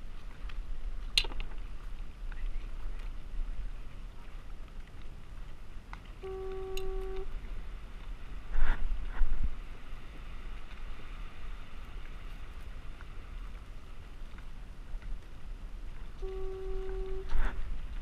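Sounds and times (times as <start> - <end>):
open-air hiss: 0.0 - 18.0
wind rumbling on microphone: 0.0 - 18.0
short pitched beep: 16.2 - 17.3.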